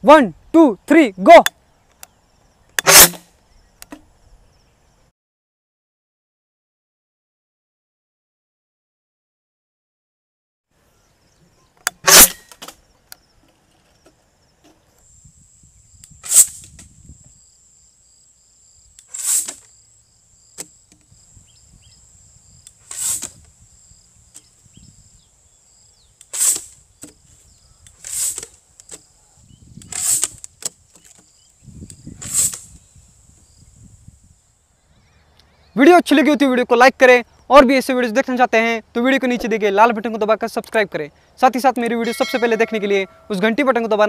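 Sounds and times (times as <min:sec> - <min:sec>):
bottle rocket launcher popping: 0:02.8 - 0:03.3, 0:11.9 - 0:12.7, 0:16.2 - 0:16.7
high insect trill: 0:10.9 - 0:40.8, 0:41.4 - 0:44.0.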